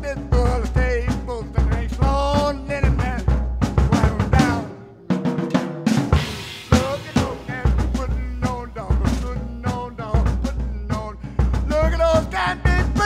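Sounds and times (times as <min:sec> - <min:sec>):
rock and roll instrumental: 0:00.0 - 0:13.0.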